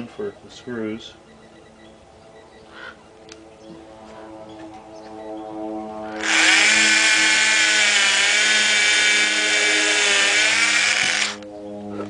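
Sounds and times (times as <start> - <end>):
power drill boring into wood: 6.2 - 11.4.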